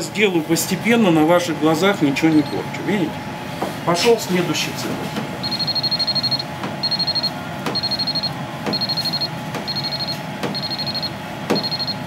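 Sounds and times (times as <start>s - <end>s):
high repeating beeps: 5.4s - 12.0s.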